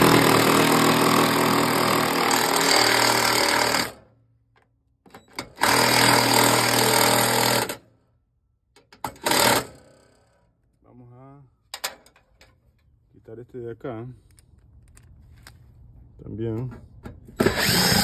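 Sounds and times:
impact driver driving screws: 0:17.4 - 0:18.0.

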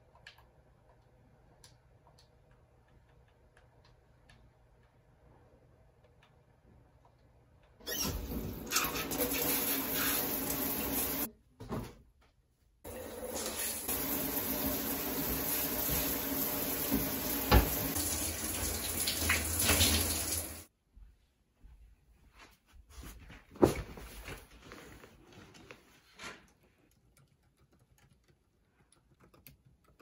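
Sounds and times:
shower water spraying: 0:07.9 - 0:11.3, 0:12.9 - 0:20.7.

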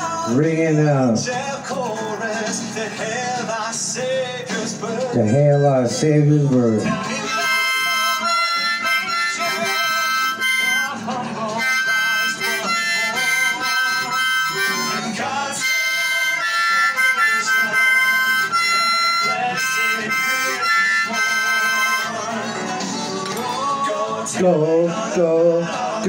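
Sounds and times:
harmonica playing: 0:05.2 - 0:23.8.

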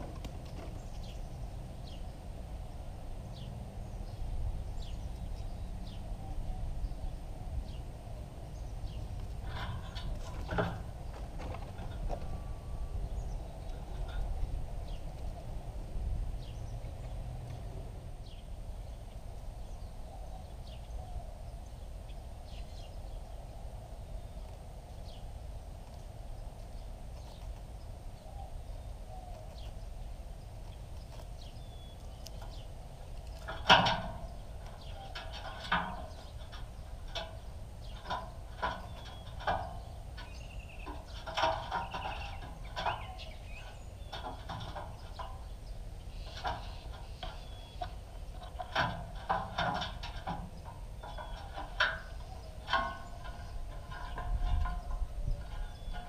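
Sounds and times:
faint bird chirps: 0:37.4 - 0:48.7.

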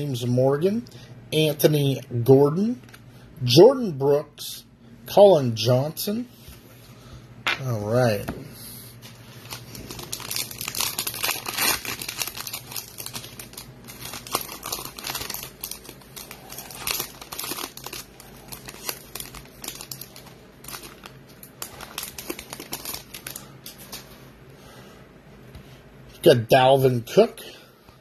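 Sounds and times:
foil wrappers crinkling and tearing: 0:09.2 - 0:24.2.

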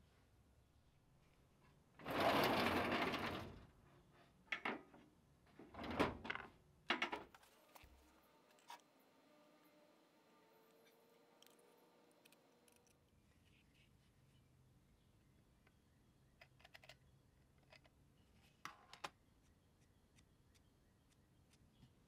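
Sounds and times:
metal drawer sliding open: 0:02.0 - 0:03.6.

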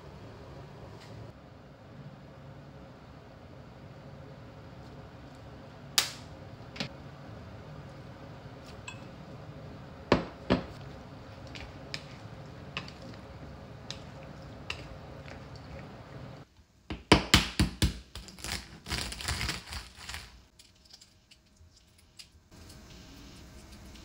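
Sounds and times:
steady low hum: 0:00.0 - 0:16.6.

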